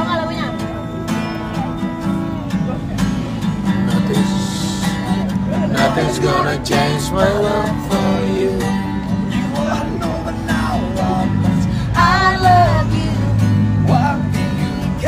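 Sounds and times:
acoustic guitar strumming: 0.0s - 15.0s
person singing: 5.7s - 8.8s.

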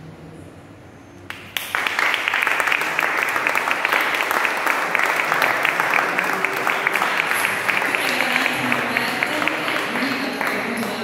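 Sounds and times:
audience applauding: 1.3s - 11.0s.

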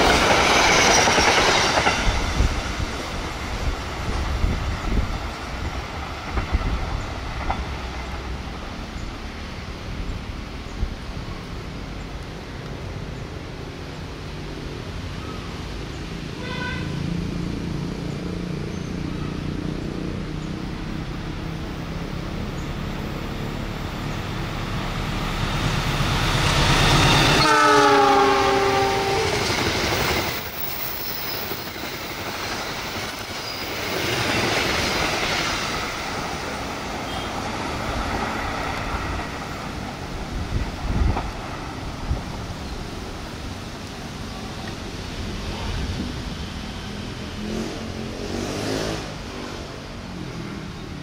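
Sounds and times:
train rumbling past: 0.0s - 51.0s
train horn: 16.4s - 17.1s, 27.1s - 29.6s, 37.0s - 37.4s.

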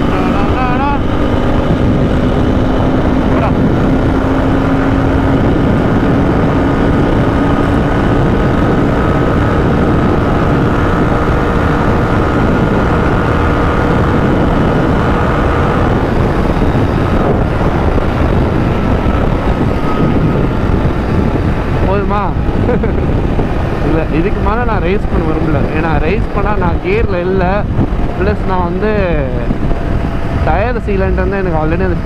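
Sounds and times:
motorcycle engine running: 0.0s - 32.0s
wind rushing: 0.0s - 32.0s.

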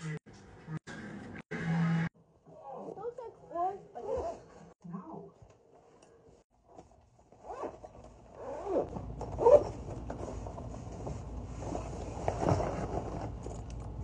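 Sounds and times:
zipper strokes: 3.9s - 4.8s, 7.3s - 9.8s.

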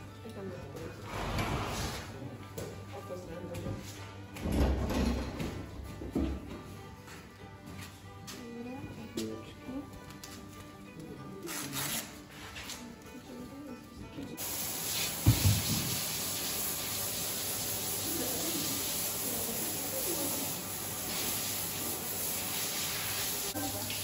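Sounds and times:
hose nozzle spraying water: 14.4s - 24.0s
thump: 15.2s - 15.9s.

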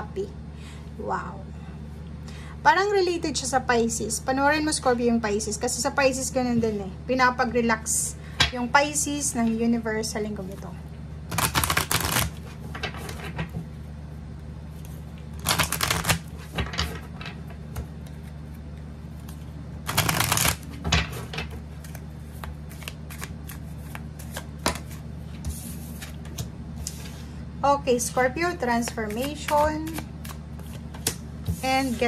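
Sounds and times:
cards being shuffled: 11.3s - 13.4s, 14.8s - 17.0s, 17.7s - 27.2s, 28.8s - 32.0s.

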